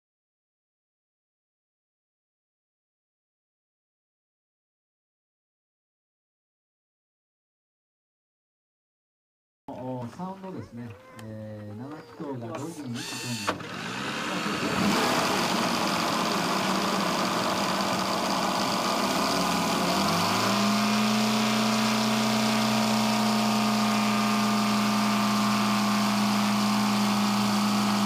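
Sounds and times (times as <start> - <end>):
model aircraft engine idling: 12.0 - 28.0.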